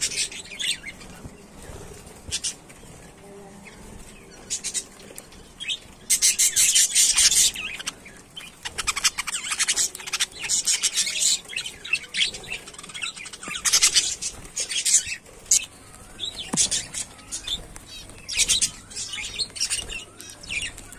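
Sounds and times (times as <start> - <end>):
budgerigars chirping: 4.4 - 20.9.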